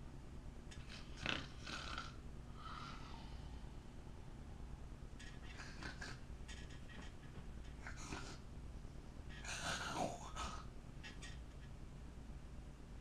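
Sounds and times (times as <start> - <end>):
person snoring and snorting: 0.7 - 3.6.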